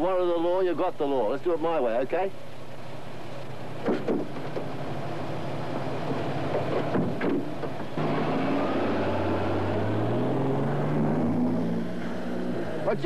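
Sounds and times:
short knocks: 3.8s - 4.7s
engine accelerating: 7.8s - 13.0s.

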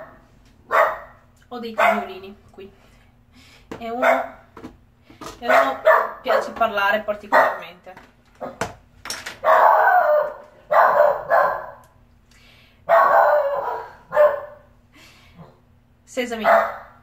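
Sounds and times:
small dog barking: 0.0s - 1.2s, 1.8s - 2.2s, 4.0s - 4.4s, 5.5s - 6.6s, 7.3s - 7.7s, 9.4s - 11.8s, 12.9s - 14.7s, 16.4s - 17.0s.

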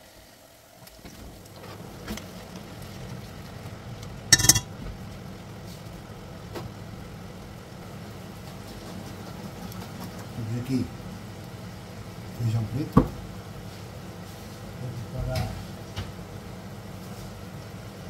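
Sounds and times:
metal utensil clattering on pot: 4.3s - 4.7s.

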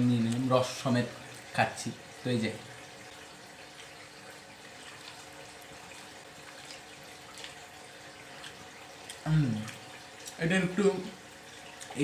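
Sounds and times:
faint wet chewing: 3.7s - 10.4s, 11.5s - 12.0s.

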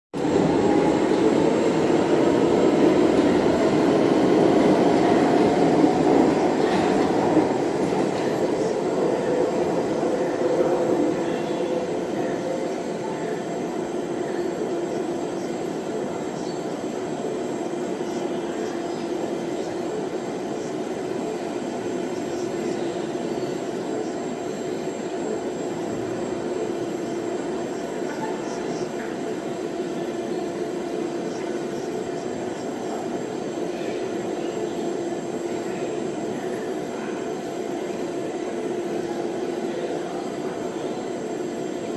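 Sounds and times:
light-rail train rumble: 0.1s - 41.9s.

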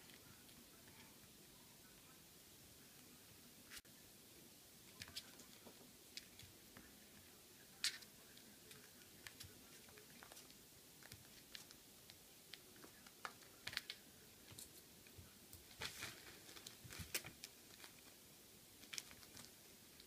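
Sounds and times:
kitten paws tapping and rustling: 4.9s - 18.2s, 18.8s - 20.0s.

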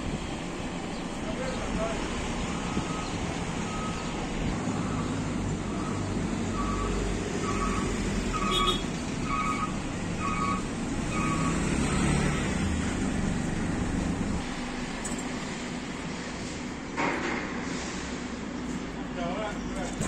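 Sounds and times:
engine rumble: 0.0s - 20.0s
reversing alarm beeping: 2.5s - 12.2s.

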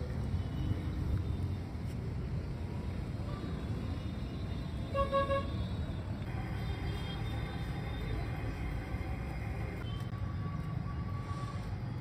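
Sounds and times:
road traffic rumbling: 0.0s - 12.0s
vehicle horn honking: 4.9s - 5.6s.

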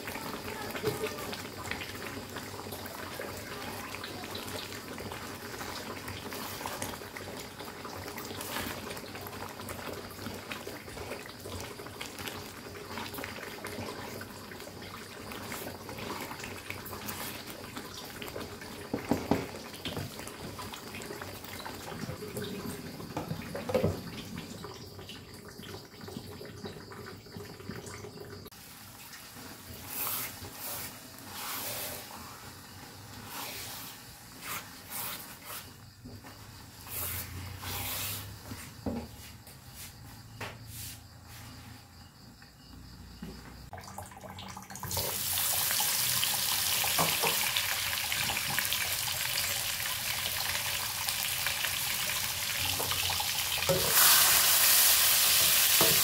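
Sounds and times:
spatula stirring in a wok: 28.6s - 38.8s.

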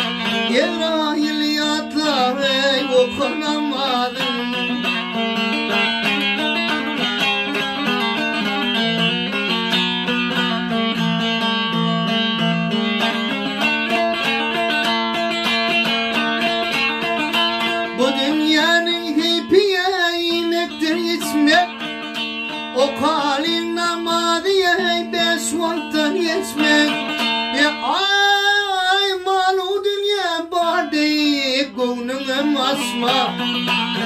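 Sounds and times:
man singing: 0.0s - 9.6s, 16.4s - 34.0s
plucked and strummed lute: 0.0s - 34.0s.

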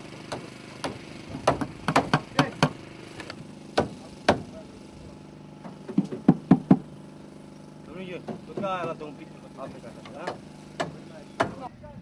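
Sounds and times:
hammer knocking on wooden boards: 0.3s - 2.8s, 3.8s - 4.5s, 5.6s - 6.9s, 8.2s - 9.0s, 10.0s - 11.7s.

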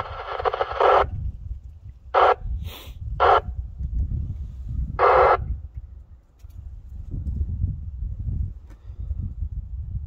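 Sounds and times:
radio static bursts: 0.0s - 1.2s, 2.1s - 2.5s, 3.2s - 3.5s, 5.0s - 5.6s.

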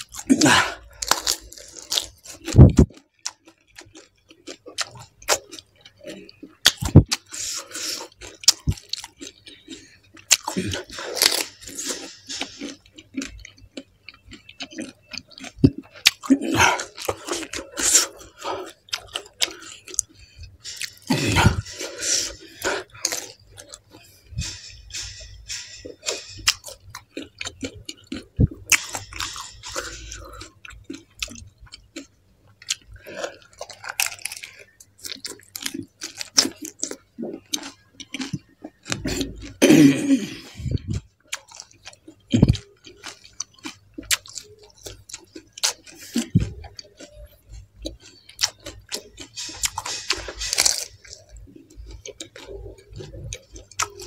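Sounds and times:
person crunching and chewing: 0.0s - 54.0s.

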